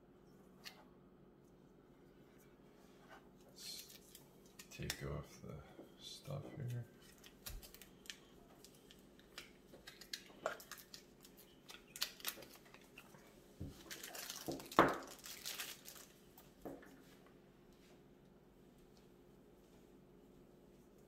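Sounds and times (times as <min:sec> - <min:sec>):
plastic film crinkling: 0:03.6 - 0:05.0, 0:07.0 - 0:16.4.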